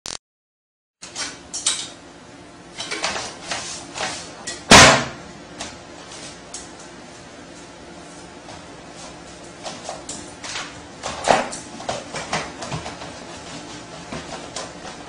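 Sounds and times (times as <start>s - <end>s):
loud bang of toilet seat: 4.7s - 5.2s.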